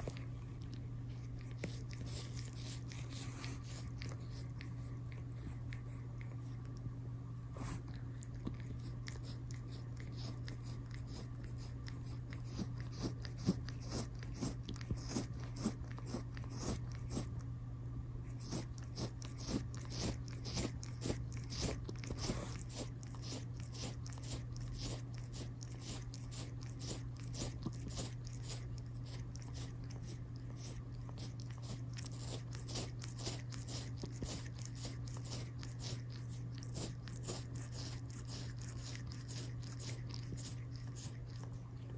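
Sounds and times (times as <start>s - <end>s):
cat licking skin: 0.0s - 17.5s, 18.2s - 41.9s.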